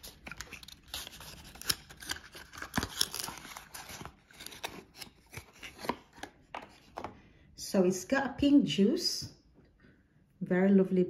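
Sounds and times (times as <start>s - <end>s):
card rustling: 0.0s - 7.2s.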